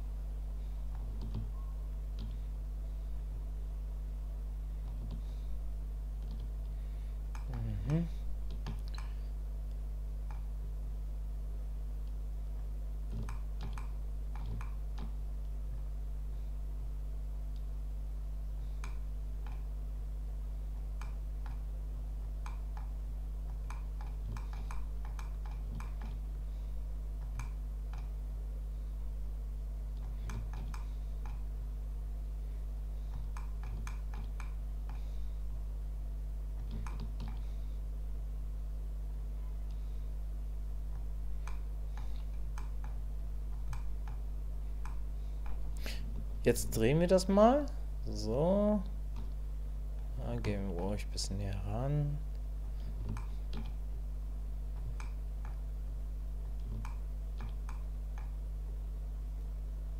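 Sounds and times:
low hum: 0.0s - 59.9s
computer mouse clicks: 0.9s - 2.4s, 6.2s - 6.7s, 13.1s - 15.6s, 18.8s - 19.7s, 20.8s - 21.7s, 22.4s - 26.2s, 27.2s - 28.2s, 29.9s - 31.5s, 33.1s - 35.0s, 36.6s - 37.5s, 41.4s - 44.2s, 52.8s - 53.8s, 54.7s - 55.6s, 56.5s - 58.4s
mouse and keyboard clicking: 13.1s - 15.2s, 36.6s - 37.4s.

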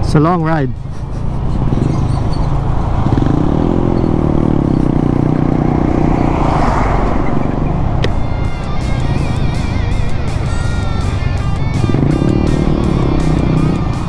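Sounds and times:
motorcycle engine running: 0.0s - 14.0s
truck passing: 0.0s - 14.0s
wind rushing over microphone: 1.4s - 11.3s.

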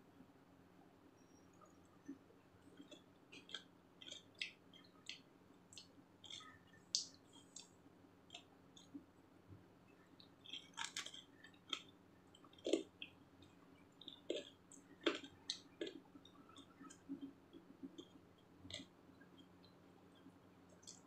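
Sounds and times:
faint low hum: 0.0s - 21.0s
person chewing raw vegetables: 2.7s - 7.7s, 10.2s - 19.5s.

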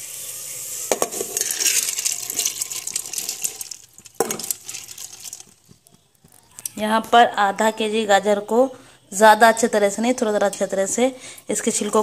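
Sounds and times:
grains pouring into metal pot: 0.0s - 5.6s.

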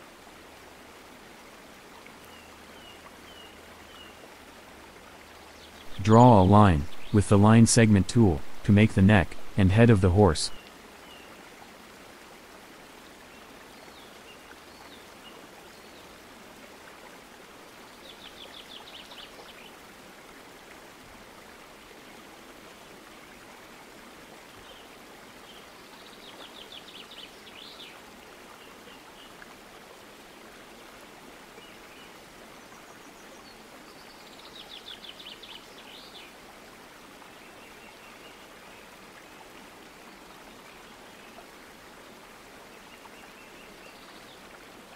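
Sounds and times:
background hiss: 0.0s - 11.3s.

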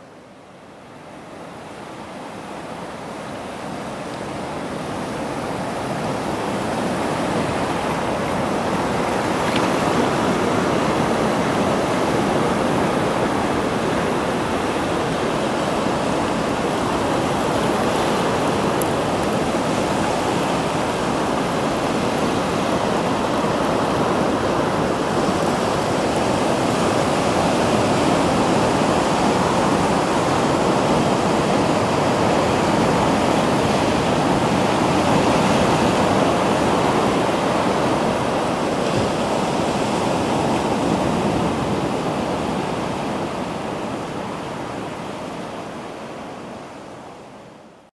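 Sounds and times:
sea waves washing over rocks: 2.9s - 46.1s.

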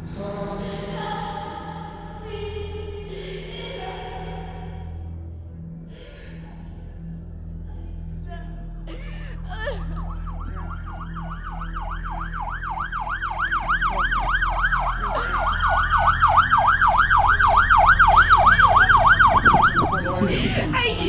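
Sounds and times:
siren slow wail: 9.4s - 20.4s
siren fast yelp: 10.0s - 20.2s.

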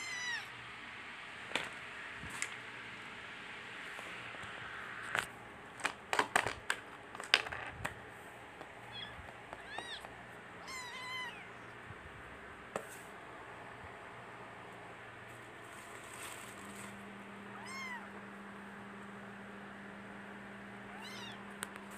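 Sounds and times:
kitten mewing: 0.0s - 0.6s, 8.8s - 11.8s, 17.5s - 18.2s, 20.9s - 21.5s.

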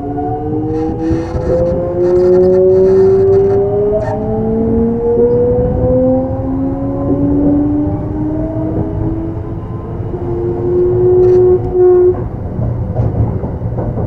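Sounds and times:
electric train inverter whine: 0.0s - 13.4s
train running gear rumble: 0.1s - 4.3s, 7.0s - 14.0s.

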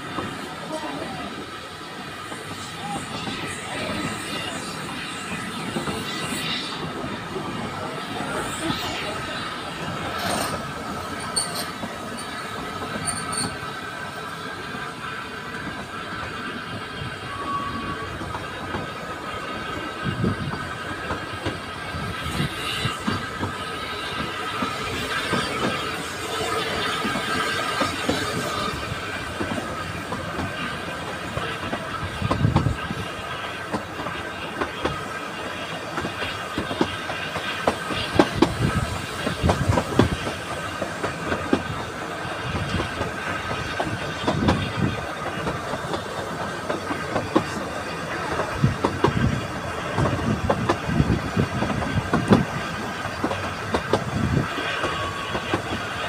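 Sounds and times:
train running rumble: 0.0s - 56.0s
high wheel squeal: 1.9s - 13.9s, 16.0s - 19.0s, 54.2s - 56.0s
train wheels clacking on rail joints: 2.2s - 14.9s, 15.5s - 56.0s.

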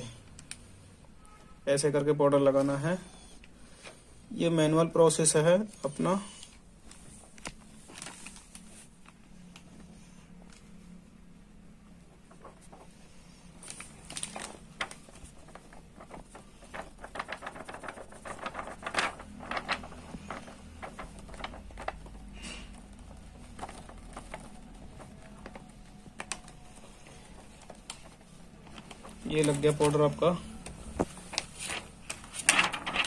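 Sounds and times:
plastic film crackling and rustling: 6.5s - 10.9s, 12.0s - 33.0s.

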